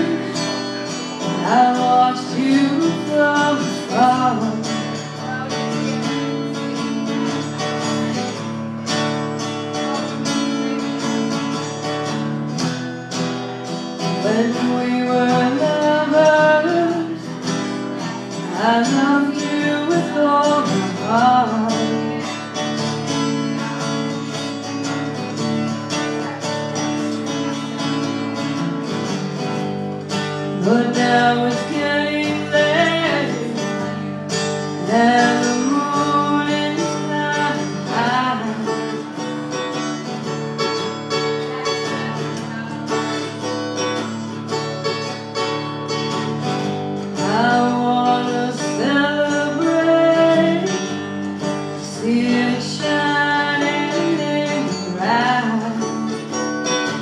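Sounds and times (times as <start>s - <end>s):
person singing: 0.0s - 6.2s, 14.0s - 22.4s, 30.2s - 39.4s, 47.0s - 57.0s
acoustic guitar: 0.0s - 57.0s.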